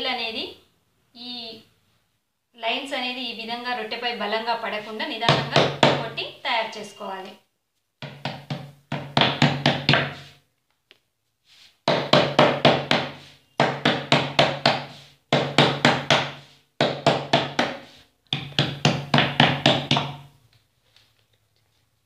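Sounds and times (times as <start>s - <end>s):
hands slapping dough on board: 8.0s - 11.0s, 11.8s - 20.3s.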